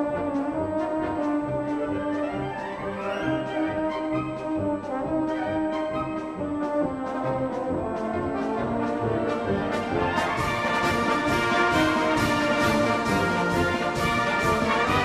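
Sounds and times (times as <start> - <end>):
brass-led orchestral music: 0.0 - 15.0.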